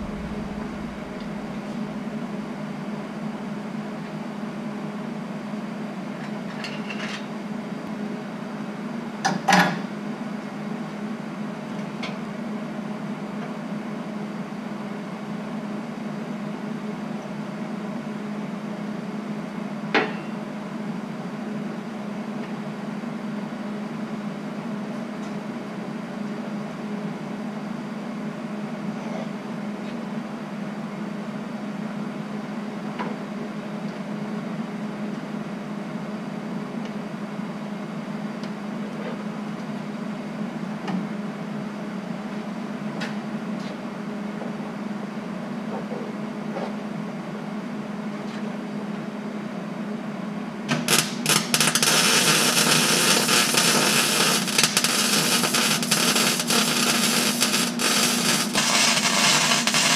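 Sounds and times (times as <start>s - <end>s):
low machine hum: 0.0s - 5.9s, 48.6s - 59.9s.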